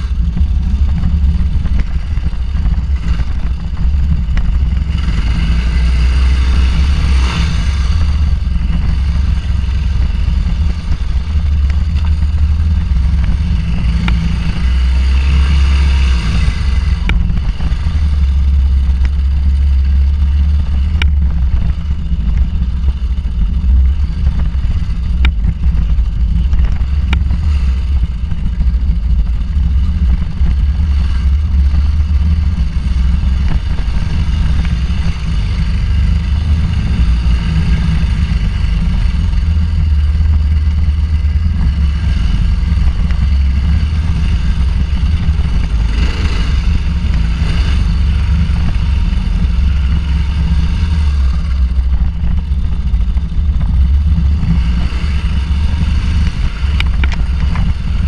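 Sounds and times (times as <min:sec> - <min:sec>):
motorcycle engine rumbling: 0:00.0 - 0:58.0.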